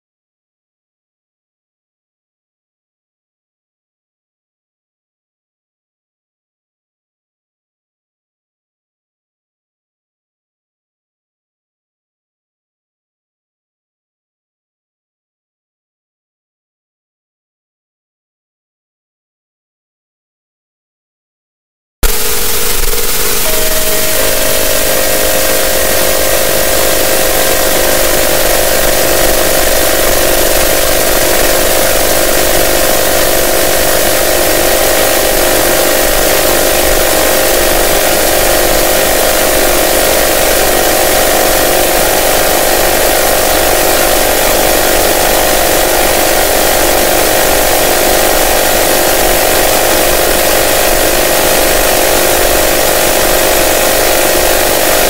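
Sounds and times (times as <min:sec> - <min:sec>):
held middle-pitched tones: 0:22.0 - 0:48.8
low hum: 0:22.0 - 0:55.0.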